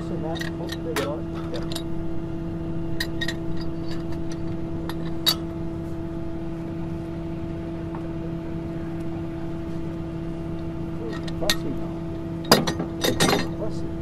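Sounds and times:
wrenches clinking on steel pipe: 0.0 - 1.9, 3.0 - 5.5, 11.0 - 11.8, 12.5 - 13.8
motor humming: 0.0 - 14.0.

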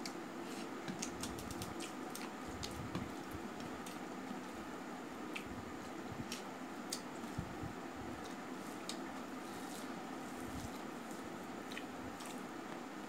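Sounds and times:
steady low hum: 0.0 - 13.0
wet chewing and smacking: 11.6 - 12.8.

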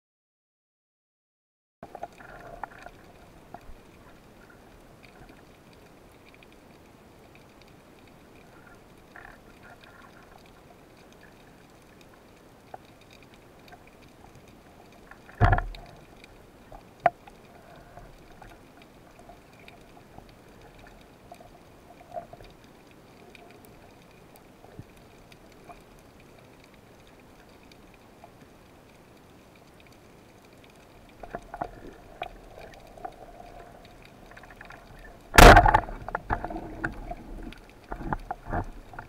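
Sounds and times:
faint underwater hiss: 1.8 - 39.0
small underwater clicks: 1.8 - 39.0
loud dull thump: 35.4 - 35.8.

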